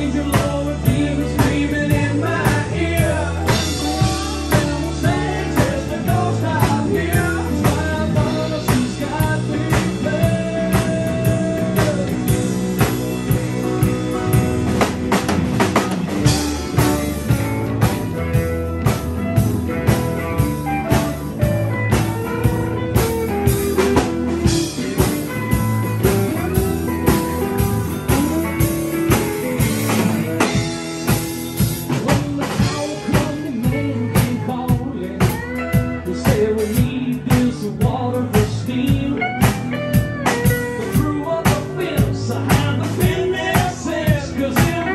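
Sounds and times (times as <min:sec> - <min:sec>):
drum kit steady beat: 0:00.0 - 0:44.9
electric bass: 0:00.0 - 0:44.9
guitars: 0:00.0 - 0:44.9
live band playing: 0:00.0 - 0:44.9.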